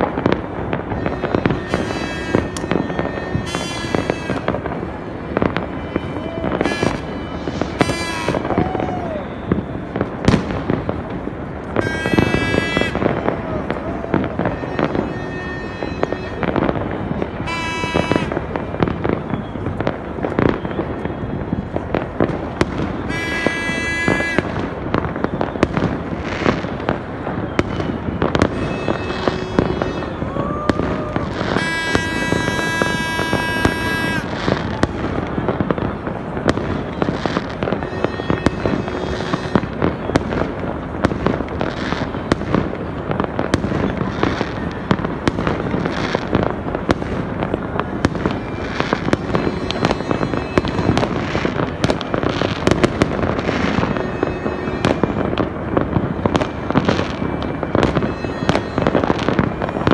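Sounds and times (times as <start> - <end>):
fireworks banging and crackling: 0.0 - 59.9
long steady high tones: 26.7 - 41.0.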